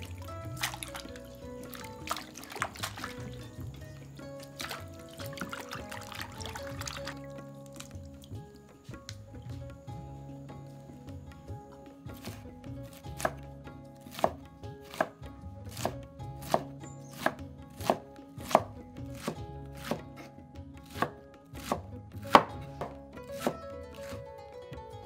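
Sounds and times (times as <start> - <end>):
knife chopping on wooden board: 12.2 - 13.4, 14.0 - 24.1.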